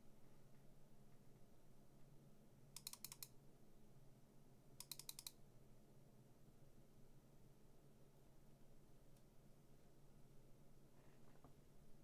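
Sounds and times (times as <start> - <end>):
computer mouse clicking: 2.8 - 3.3, 4.8 - 5.4.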